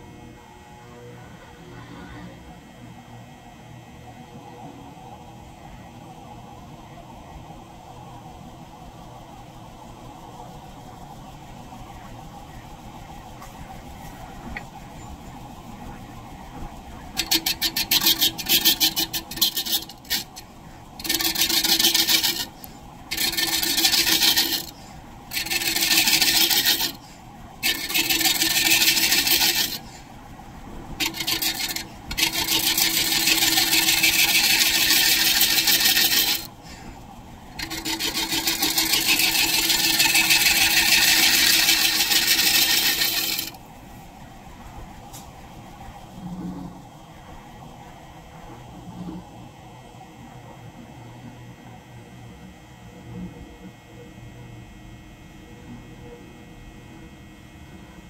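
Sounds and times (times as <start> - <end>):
lathe humming: 2.5 - 49.5
scraper cutting wood on lathe: 17.1 - 27.0, 27.6 - 30.0, 31.0 - 36.6, 37.6 - 43.6.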